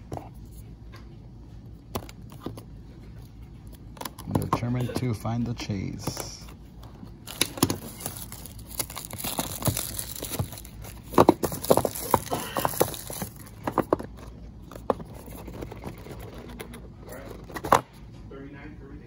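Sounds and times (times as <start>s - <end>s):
cardboard box clicks and crinkles: 7.2s - 17.8s.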